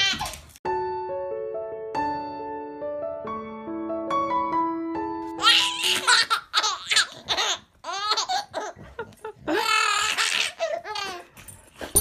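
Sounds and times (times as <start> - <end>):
baby laughing: 0.0 - 0.4, 5.4 - 11.3
piano notes: 0.6 - 6.9.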